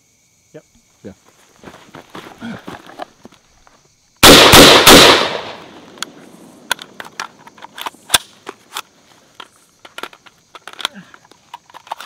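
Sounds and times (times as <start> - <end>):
rifle shots: 4.2 - 5.9.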